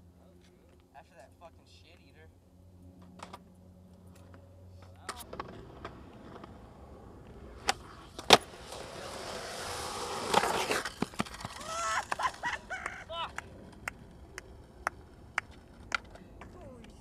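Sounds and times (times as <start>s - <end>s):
skateboard wheels rolling on concrete: 3.0s - 17.0s
skateboard pop crack: 7.6s - 8.8s, 10.1s - 16.6s
skateboard clacks: 7.6s - 17.0s
skateboard slapping down: 7.6s - 17.0s.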